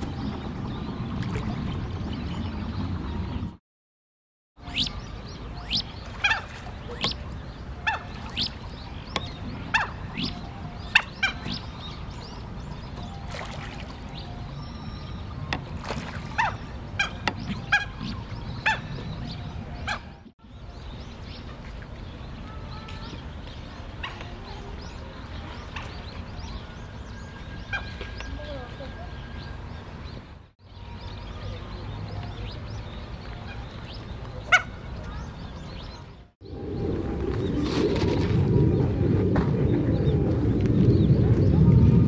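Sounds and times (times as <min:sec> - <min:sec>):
ducks calling with high whistles: 0:04.6 - 0:11.8, 0:16.4 - 0:20.3.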